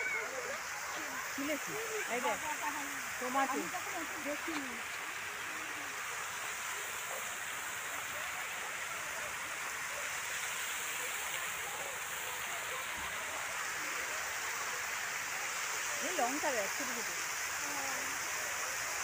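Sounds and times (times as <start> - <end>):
faint voices: 0.0 - 19.0
running water in a pool: 0.0 - 19.0.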